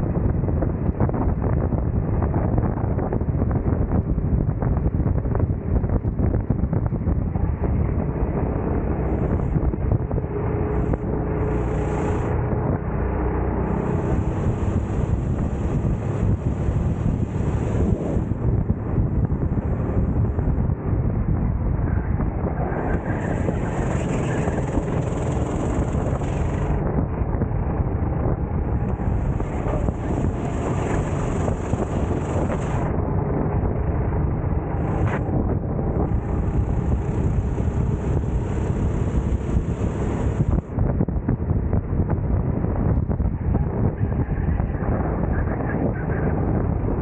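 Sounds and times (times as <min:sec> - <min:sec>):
wind buffeting microphone: 0:00.0 - 0:47.0
kart engine running: 0:08.5 - 0:20.6, 0:22.6 - 0:26.9, 0:28.5 - 0:40.7.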